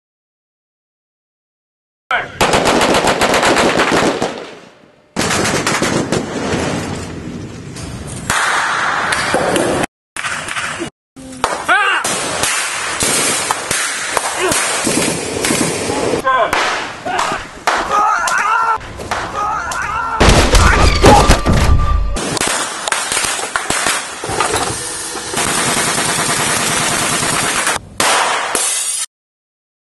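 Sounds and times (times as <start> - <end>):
automatic gunfire: 2.4 - 4.5, 25.3 - 28.5.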